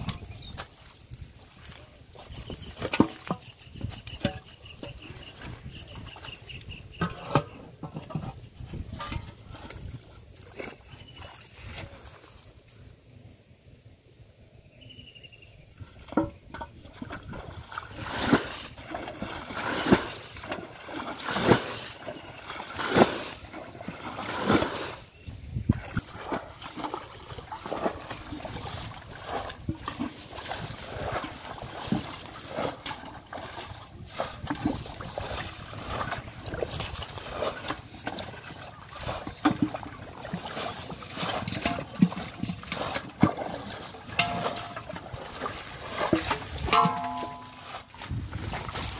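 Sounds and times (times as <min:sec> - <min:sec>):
water sloshing and dripping: 0:00.0 - 0:12.8, 0:15.8 - 0:48.9
thrown water splashing: 0:16.0 - 0:25.1, 0:25.7 - 0:48.9.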